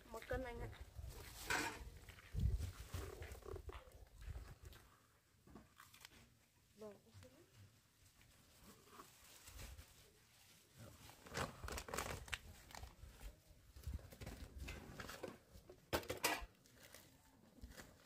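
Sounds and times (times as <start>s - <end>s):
plastic bag crinkling: 11.0s - 13.0s.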